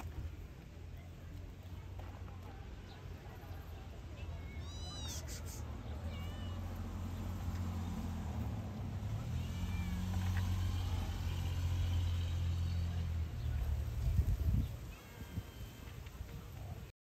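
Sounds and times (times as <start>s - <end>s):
kittens meowing: 4.4s - 6.8s, 9.4s - 10.2s.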